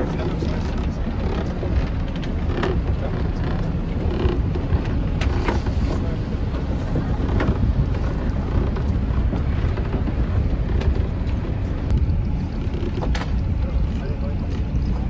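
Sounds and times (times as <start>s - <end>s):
boat motor running: 0.0s - 15.0s
water rushing past hull: 0.0s - 15.0s
wind buffeting microphone: 0.0s - 15.0s.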